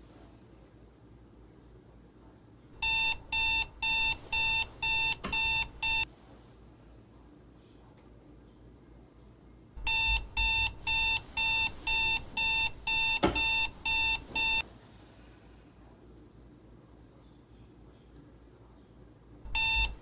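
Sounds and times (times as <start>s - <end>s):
alarm clock beeping: 2.8s - 6.1s, 9.8s - 14.6s, 19.5s - 20.0s.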